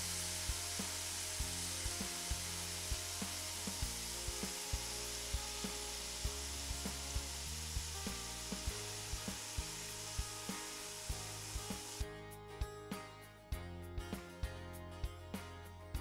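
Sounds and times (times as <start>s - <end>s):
fish sizzling in frying pan: 0.0s - 12.0s
background music with steady beat: 0.0s - 16.0s.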